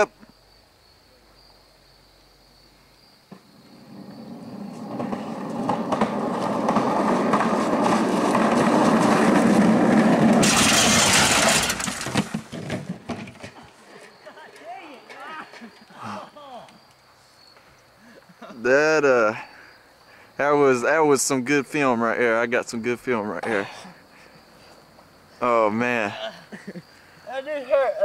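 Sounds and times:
skateboard wheels rolling on concrete: 3.2 - 19.4
rider crashing knocks: 3.3 - 13.7.

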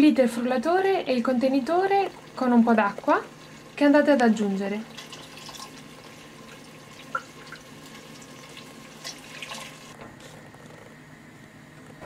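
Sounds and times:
liquid splashing into pot: 4.9 - 9.9.

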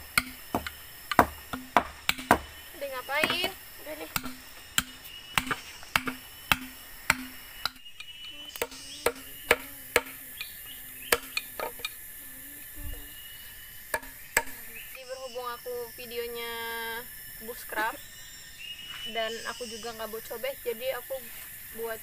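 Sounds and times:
machete chopping bamboo: 0.0 - 7.9, 8.6 - 10.5, 11.1 - 12.0, 13.9 - 14.6.

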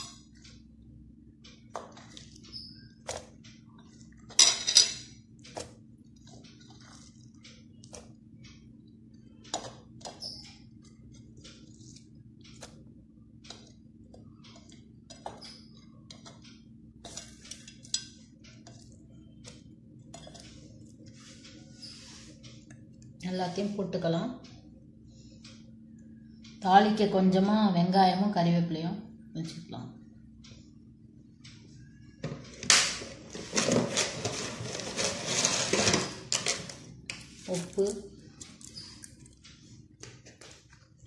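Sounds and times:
steady low hum: 0.0 - 34.9
utensils clinking on steel pot: 4.3 - 5.2, 17.0 - 18.2.

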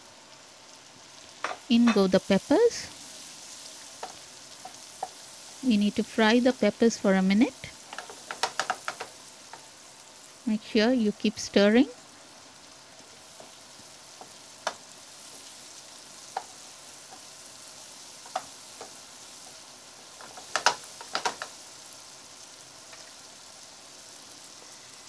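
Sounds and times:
vegetables sizzling in oil: 0.0 - 25.0
spatula scraping and knocking pan: 7.9 - 9.1, 20.2 - 21.5.

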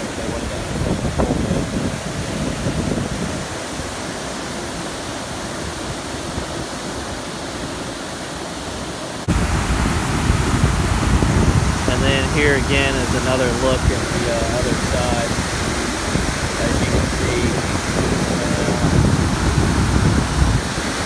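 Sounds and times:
roar of falling water: 0.0 - 21.0.

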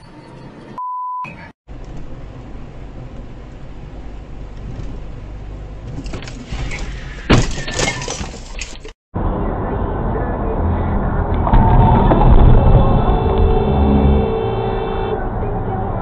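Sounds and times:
short steady beep: 0.8 - 1.5
car engine and tyres rumbling: 1.7 - 16.0
loud car crash: 10.4 - 15.1.

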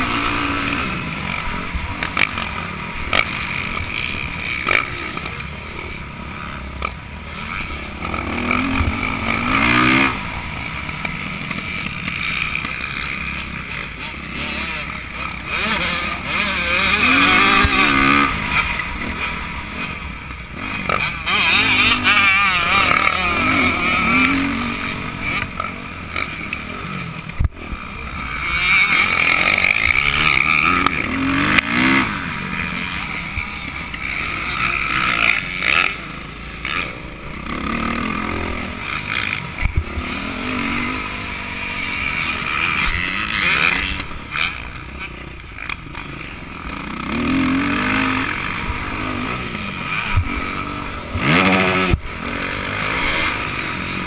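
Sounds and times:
dirt bike engine revving: 0.0 - 54.0.

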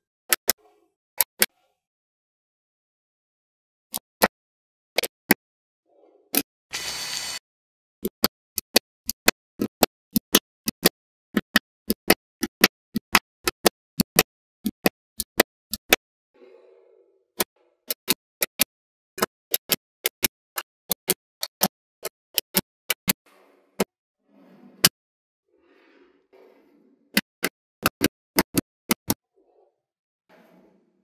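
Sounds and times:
magnetic balls clicking together: 17.4 - 23.2.

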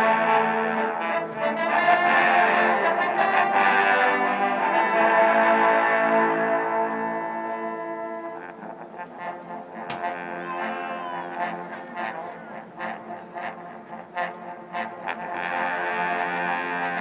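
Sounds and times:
trombone chords: 0.0 - 17.0
marching band playing: 9.9 - 16.3.

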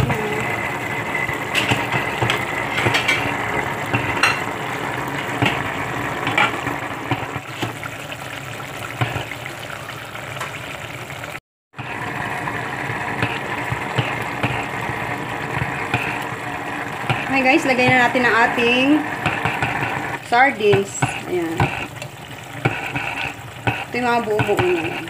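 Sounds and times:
broth simmering in a pan: 0.0 - 25.0
constant hum: 11.8 - 25.0.

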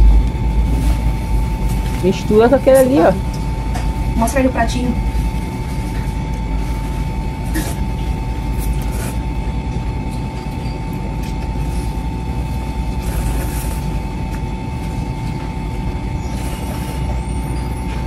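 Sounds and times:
thin hum: 0.0 - 7.6
low background rumble: 0.0 - 10.4
slurping noodles: 6.6 - 9.4, 11.6 - 14.4, 16.2 - 17.7.

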